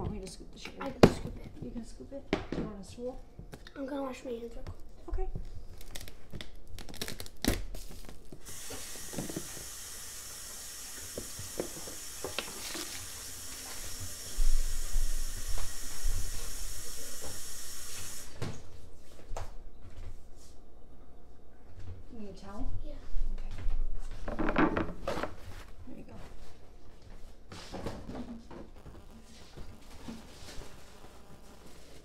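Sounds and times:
faucet water running: 8.4 - 18.4.

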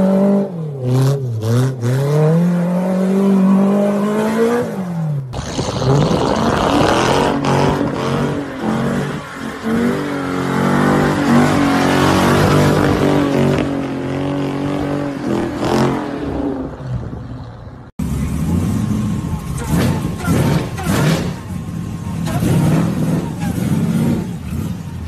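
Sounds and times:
car engine revving hard: 0.0 - 16.4, 18.2 - 21.5, 22.2 - 25.0
spraying sand and tyre noise: 5.3 - 13.6.

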